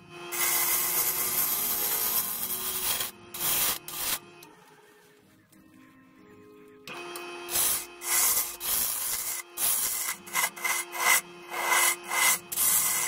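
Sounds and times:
lathe humming: 0.0s - 5.0s, 6.9s - 13.0s
lathe tool scraping wood: 0.3s - 4.2s, 7.5s - 13.0s.

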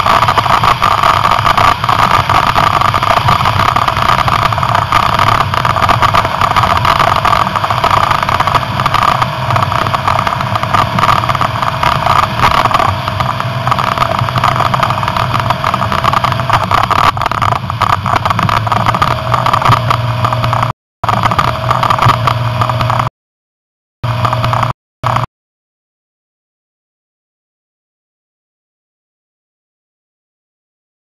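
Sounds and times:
car engine running: 0.0s - 23.1s, 24.0s - 25.3s
wind noise: 0.0s - 23.1s.

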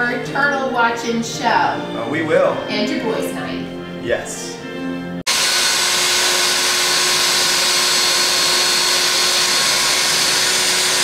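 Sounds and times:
vacuum cleaner running: 5.2s - 11.0s.

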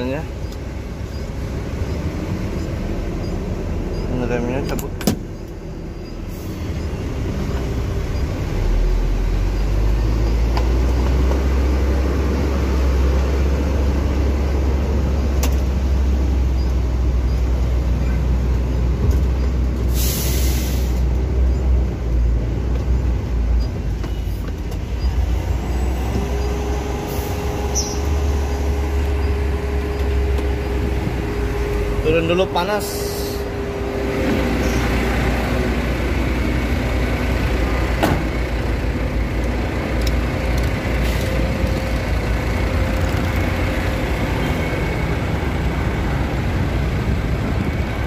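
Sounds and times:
diesel engine rumble: 0.0s - 48.0s
compressed air hiss: 19.9s - 21.1s
steady whine: 24.8s - 48.0s.

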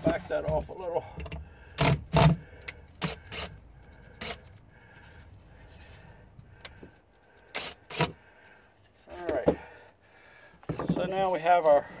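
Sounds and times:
wood rubbing and scraping: 0.0s - 0.8s, 10.6s - 12.0s
wooden knocks: 10.6s - 11.2s.

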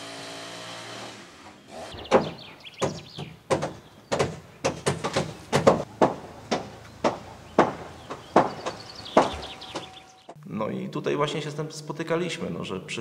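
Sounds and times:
sharp blows on wood: 0.8s - 10.1s.

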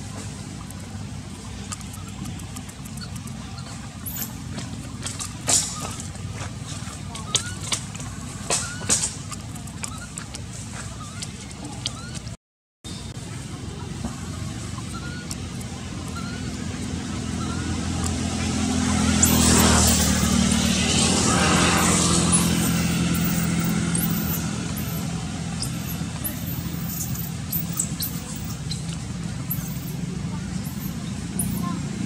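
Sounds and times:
vehicle engine passing: 0.0s - 12.2s, 13.0s - 32.0s.

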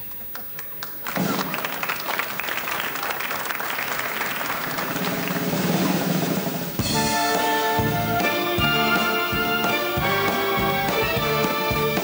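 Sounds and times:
audience applause: 0.0s - 6.7s
orchestra playing held chords: 6.8s - 12.0s.

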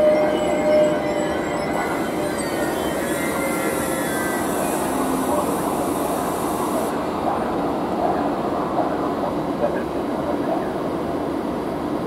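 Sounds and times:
wheel squeal: 0.0s - 6.3s
train rolling rumble on rails: 0.0s - 12.0s.

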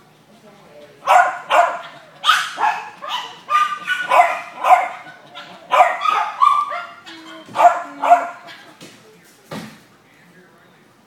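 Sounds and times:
dog barking: 1.0s - 8.8s.

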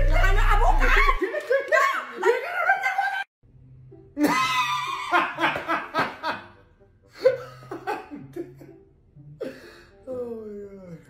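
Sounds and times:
young man laughing loudly: 4.2s - 6.5s.

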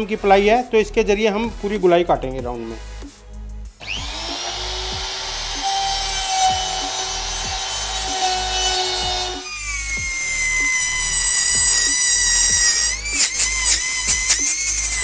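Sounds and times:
background music: 0.0s - 15.0s
electric router whining: 3.8s - 15.0s
router bit cutting plywood: 3.8s - 15.0s.

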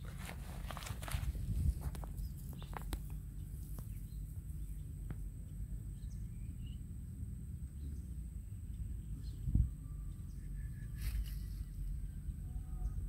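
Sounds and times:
rustling and footsteps in grass: 0.0s - 4.7s
low outdoor rumble: 0.0s - 13.0s
faint bird chirps: 7.7s - 13.0s.

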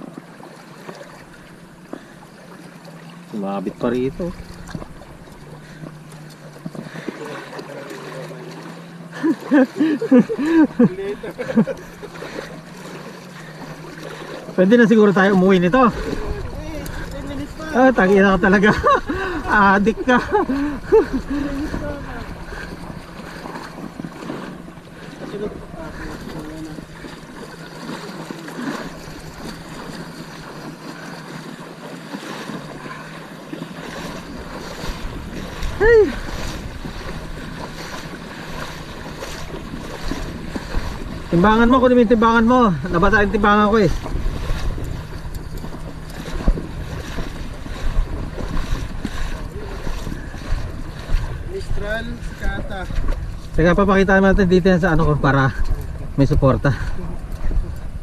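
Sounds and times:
seawater sloshing around legs: 0.0s - 58.0s
person calling out: 35.7s - 36.2s.

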